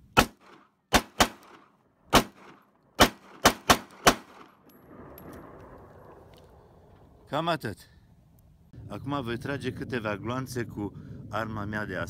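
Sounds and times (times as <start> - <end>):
pistol shots: 0.2 - 4.6.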